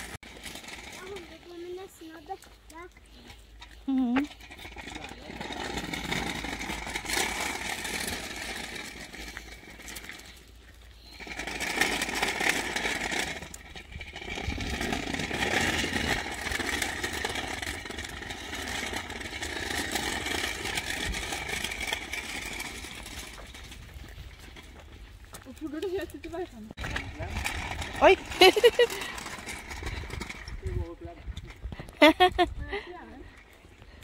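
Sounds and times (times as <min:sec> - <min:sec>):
small wheels rolling over asphalt: 0:00.0 - 0:34.0.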